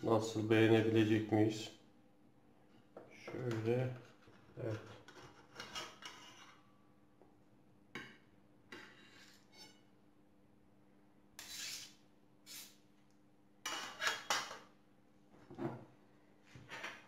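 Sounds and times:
knife scraping metal pan: 0:05.0 - 0:06.7, 0:08.7 - 0:09.9, 0:11.4 - 0:12.8, 0:13.6 - 0:14.6.

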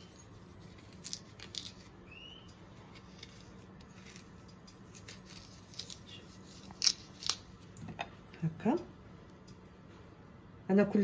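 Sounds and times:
knife cutting and scraping fruit: 0:00.0 - 0:08.1.

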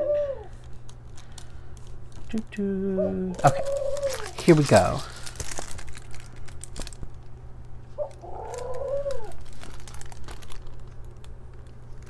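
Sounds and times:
short pitched coo or hum: 0:00.0 - 0:00.6, 0:02.8 - 0:04.4
plastic packaging crinkling: 0:00.5 - 0:02.5, 0:03.3 - 0:12.0.

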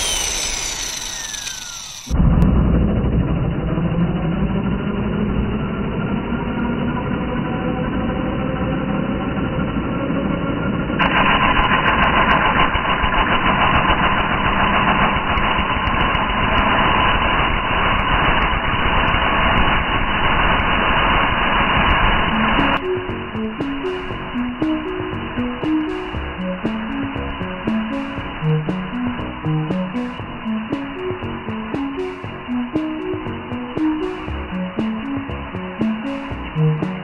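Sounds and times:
angle grinder cutting metal rod: 0:00.0 - 0:02.2.

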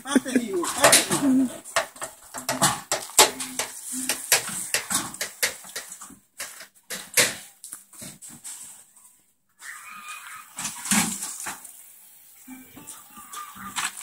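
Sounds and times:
folding tables knocking and clattering: 0:00.6 - 0:07.5.

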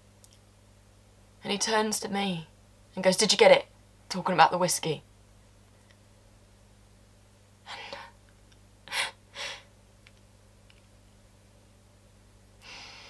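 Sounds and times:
faint low hum: 0:00.0 - 0:13.0
woman breathing: 0:08.9 - 0:09.7, 0:12.6 - 0:13.0.

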